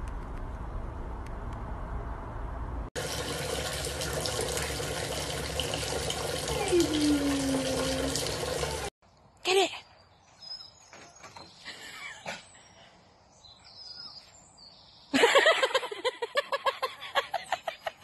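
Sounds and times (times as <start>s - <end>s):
faint bird chirps: 9.3s - 15.1s.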